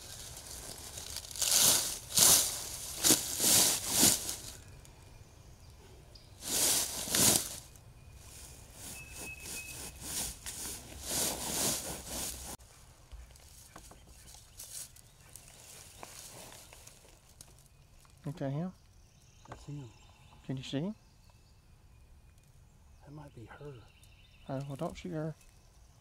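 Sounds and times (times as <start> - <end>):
rustling and crinkling: 0.0 - 4.8, 6.4 - 18.3.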